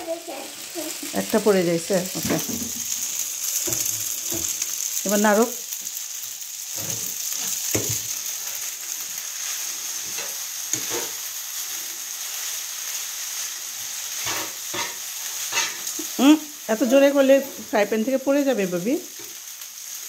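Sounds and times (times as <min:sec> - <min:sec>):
pasta sizzling in a frying pan: 0:00.0 - 0:20.0
spatula scraping and knocking pan: 0:02.2 - 0:03.0, 0:03.6 - 0:04.6, 0:06.7 - 0:08.2, 0:10.0 - 0:11.2, 0:14.2 - 0:15.9.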